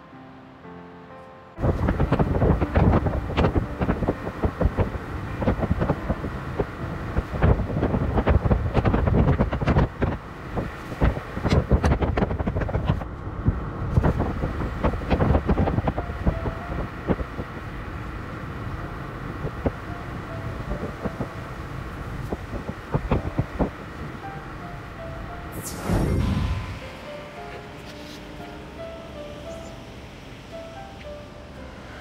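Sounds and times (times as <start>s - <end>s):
vehicle running noise: 1.6s - 32.0s
faint brief tone: 25.5s - 29.8s.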